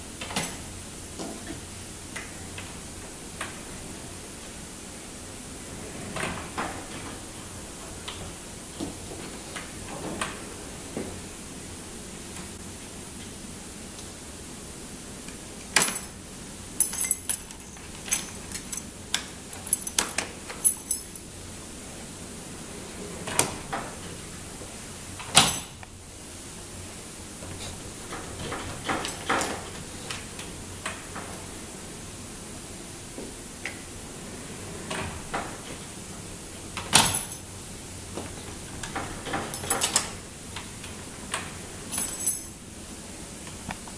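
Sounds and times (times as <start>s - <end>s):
sliding door opening and shutting: 5.5s - 11.3s, 22.2s - 25.5s, 27.5s - 31.9s, 33.5s - 37.2s, 38.1s - 42.0s.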